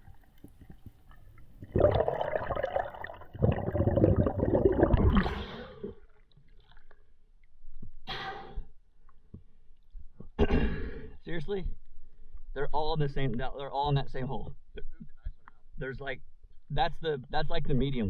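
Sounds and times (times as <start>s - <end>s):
muffled underwater rushing: 0.0s - 5.9s
water splash: 1.6s - 5.8s.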